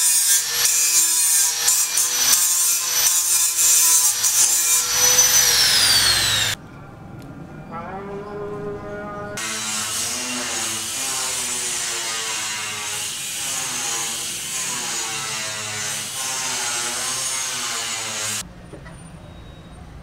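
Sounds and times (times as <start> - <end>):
power tool whining on metal: 0.0 - 6.6.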